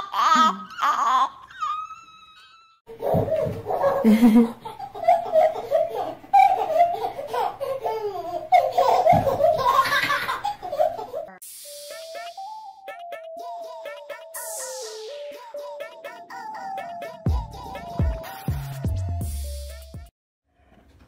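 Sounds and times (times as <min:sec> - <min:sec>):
baby laughing: 0:00.0 - 0:11.4, 0:15.1 - 0:18.5
bouncy music with synthetic voice: 0:11.4 - 0:20.1.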